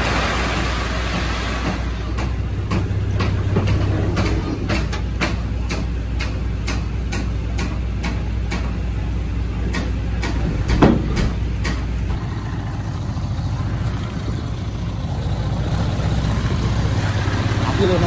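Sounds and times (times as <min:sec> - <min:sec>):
bulldozer diesel engine running: 0:00.0 - 0:18.0
loud clunk: 0:09.8 - 0:11.9.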